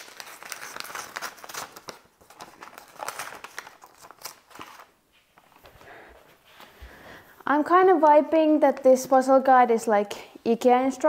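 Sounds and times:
packaging and paper crinkling: 0:00.0 - 0:05.8.

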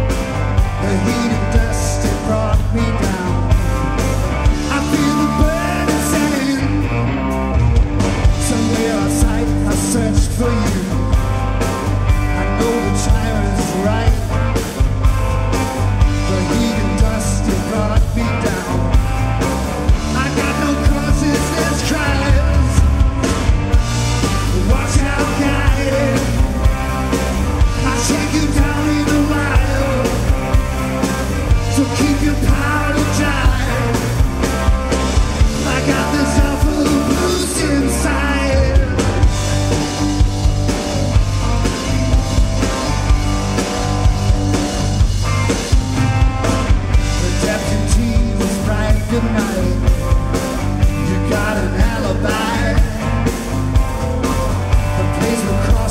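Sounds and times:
bass guitar: 0:00.0 - 0:55.9
drum kit: 0:00.0 - 0:55.9
electric guitar: 0:00.0 - 0:55.9
person singing: 0:00.8 - 0:03.6, 0:04.6 - 0:07.1, 0:08.4 - 0:11.1, 0:12.3 - 0:14.4, 0:20.1 - 0:23.0, 0:24.4 - 0:26.8, 0:27.7 - 0:30.5, 0:31.5 - 0:34.2, 0:35.5 - 0:39.3, 0:47.1 - 0:50.0, 0:51.0 - 0:53.3, 0:54.9 - 0:55.9.

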